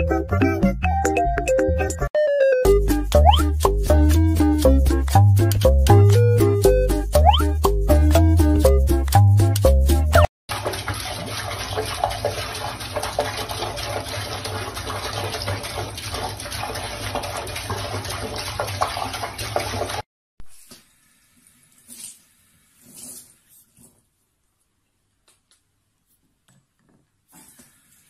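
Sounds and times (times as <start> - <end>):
tap water splashing into basin: 10.5 - 20.0.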